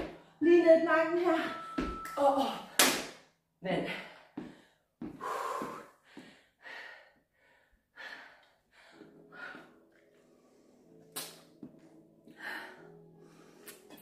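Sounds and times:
woman panting heavily: 0:03.8 - 0:10.6, 0:12.3 - 0:13.6.

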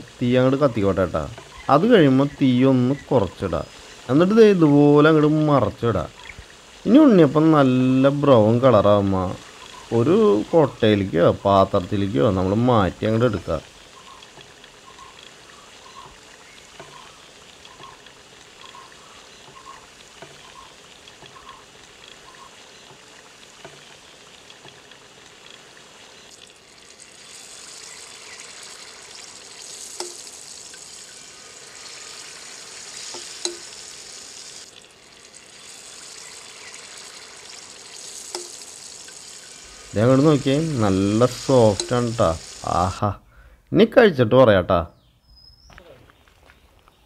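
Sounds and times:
oil sizzling in a pan: 0:00.0 - 0:43.1
sharp metal clicks: 0:30.0 - 0:30.8.

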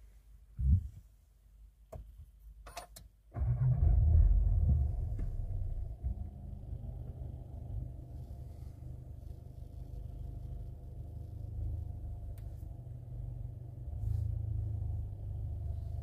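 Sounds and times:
car engine starting and idling: 0:03.3 - 0:16.0.

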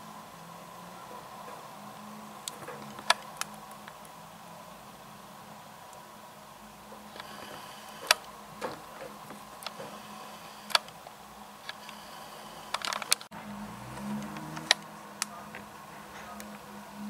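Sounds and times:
steady low hum: 0:00.0 - 0:17.0
sharp clicks and ticks: 0:02.4 - 0:04.1, 0:07.1 - 0:13.3, 0:13.9 - 0:16.7
low engine note: 0:06.5 - 0:17.0.

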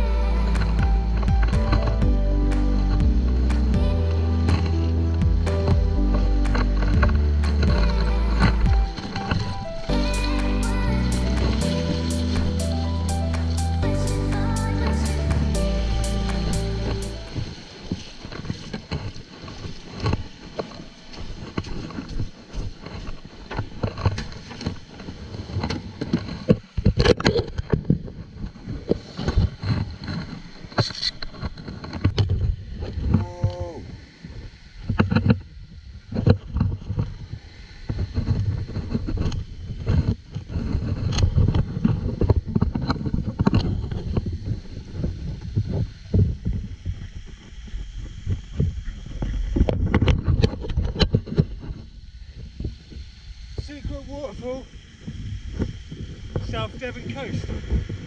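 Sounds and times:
wind gusting on microphone: 0:14.6 - 0:58.0.

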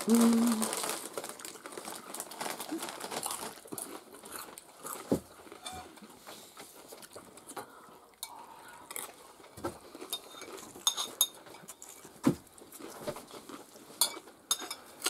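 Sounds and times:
cutlery clinking on china plates: 0:10.1 - 0:12.0, 0:14.0 - 0:14.9.

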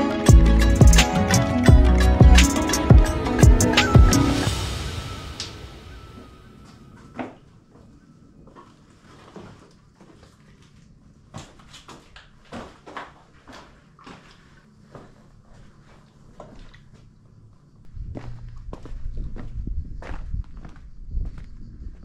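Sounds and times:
footsteps on rocky floor: 0:08.5 - 0:16.8.

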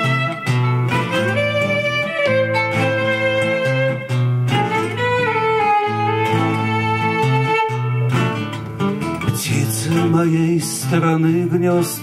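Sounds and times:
violin melody: 0:00.0 - 0:09.3
acoustic guitar: 0:00.0 - 0:12.0.

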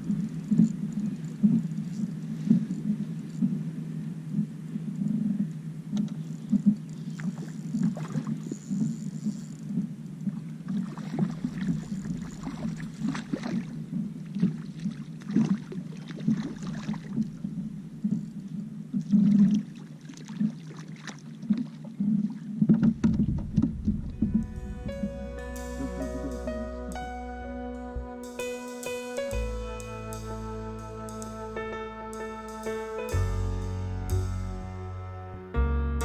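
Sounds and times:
wind and water against hull: 0:00.0 - 0:28.2.

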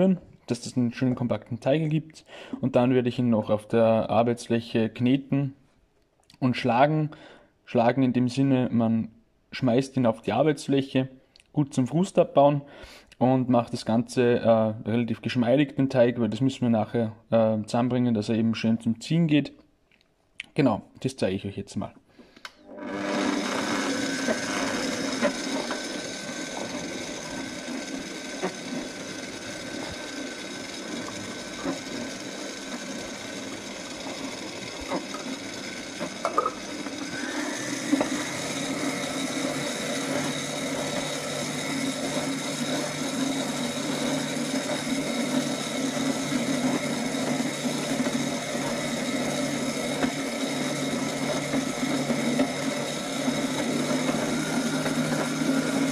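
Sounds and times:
stand mixer motor whining: 0:22.5 - 0:55.9.

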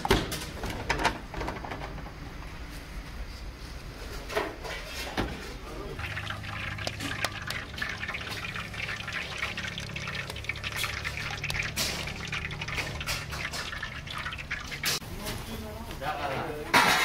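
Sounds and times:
oil spitting and crackling: 0:06.0 - 0:15.0.

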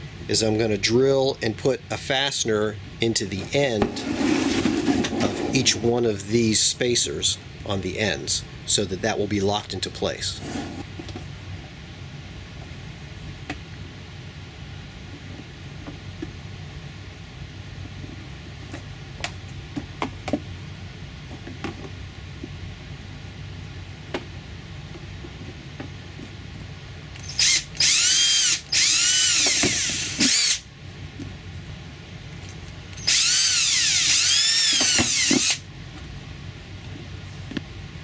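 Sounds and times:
power drill boring through plastic: 0:27.2 - 0:30.6, 0:33.0 - 0:35.6.

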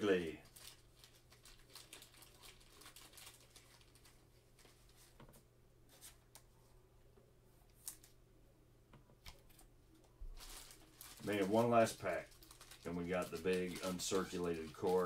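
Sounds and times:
trading cards rustling: 0:00.1 - 0:05.3, 0:10.3 - 0:15.0.

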